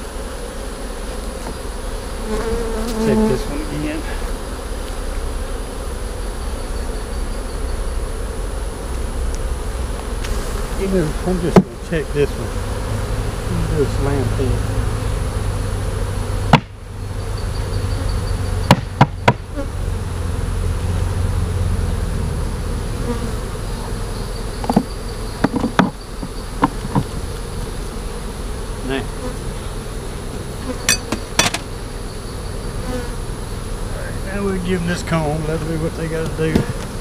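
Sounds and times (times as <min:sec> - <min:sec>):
honeybees buzzing: 0:00.0 - 0:37.0
knocks of hive frames: 0:00.4 - 0:04.5, 0:09.8 - 0:13.0, 0:16.4 - 0:16.8, 0:18.6 - 0:19.6, 0:23.9 - 0:32.0, 0:34.3 - 0:37.0.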